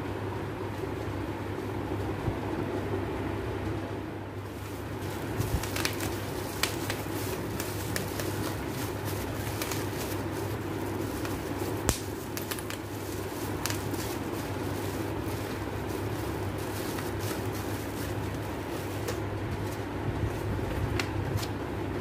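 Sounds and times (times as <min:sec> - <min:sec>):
steady low hum: 0:00.0 - 0:22.0
bubble wrap crinkling: 0:04.4 - 0:21.6.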